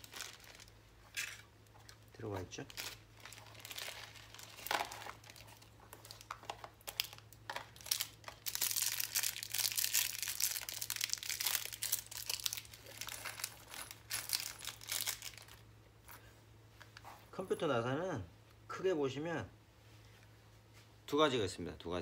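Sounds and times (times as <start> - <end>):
plastic bag crinkling: 0.0 - 15.7
low steady hum: 0.0 - 22.0.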